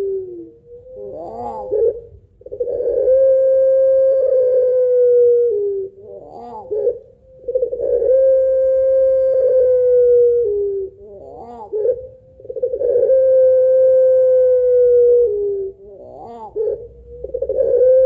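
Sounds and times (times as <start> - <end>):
dove chuckling call: 0.0 - 18.0
dove cooing: 0.0 - 18.0.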